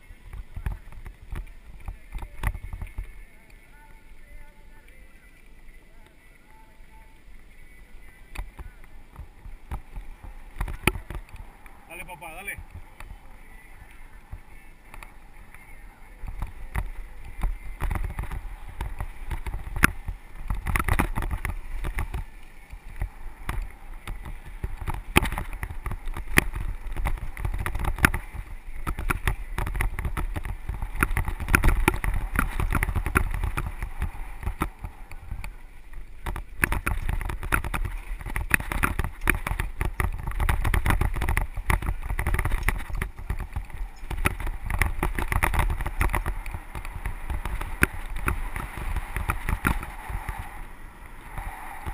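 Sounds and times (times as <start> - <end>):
mountain bike rattling: 0.0 - 51.9
wind on the microphone: 8.2 - 51.9
bike knocking over bumps: 8.4 - 11.9, 16.2 - 50.5.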